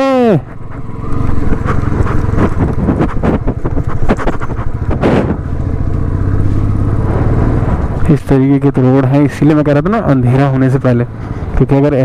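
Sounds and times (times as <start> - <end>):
motorcycle engine running: 0.0 - 12.0
wind buffeting microphone: 0.5 - 5.8.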